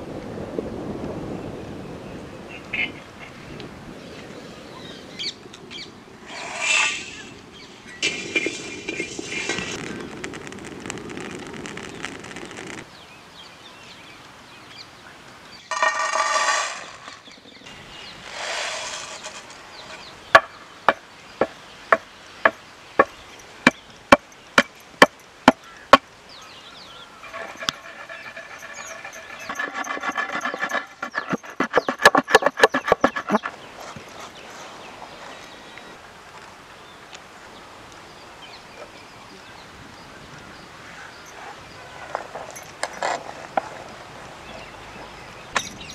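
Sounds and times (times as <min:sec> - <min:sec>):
spatula scraping iron pan: 0:15.7 - 0:17.3, 0:18.3 - 0:20.1, 0:27.2 - 0:33.6
pestle pounding in stone mortar: 0:29.4 - 0:33.5.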